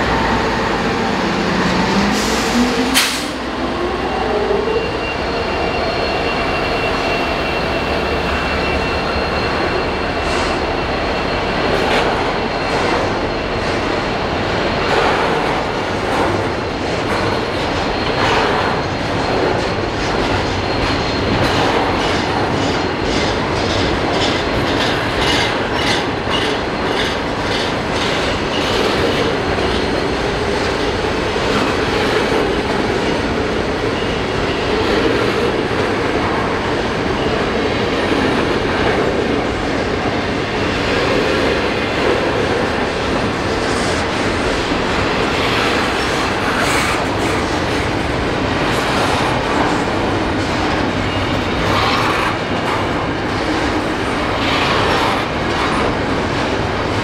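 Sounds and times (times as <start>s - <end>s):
rumble of rolling train: 0.0s - 57.0s
train wheels clicking over rail joints: 14.8s - 39.4s.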